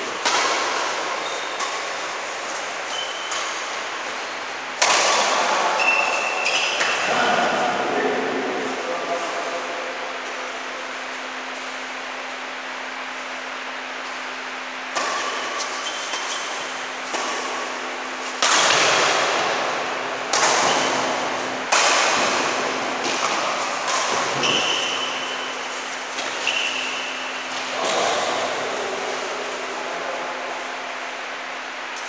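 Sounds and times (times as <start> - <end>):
steady low hum: 0.0 - 32.0
rackets striking shuttlecock: 0.1 - 4.2, 4.8 - 7.2, 14.8 - 19.6, 20.2 - 27.7.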